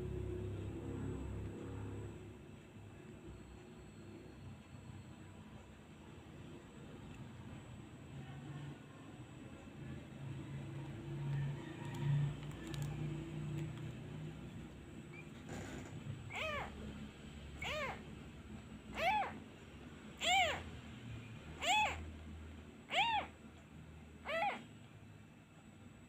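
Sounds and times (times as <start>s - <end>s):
kitten mewing: 16.2s - 16.9s, 17.6s - 18.1s, 18.9s - 19.5s, 20.2s - 20.7s, 21.6s - 22.1s, 22.9s - 23.4s, 24.2s - 24.7s.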